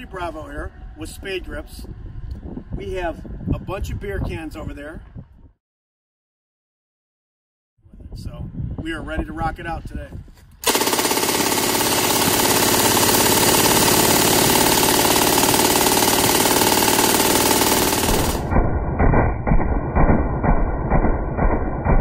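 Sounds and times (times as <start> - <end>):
machine gun firing burst: 10.6 - 22.0
muffled slow low thumps: 18.5 - 22.0.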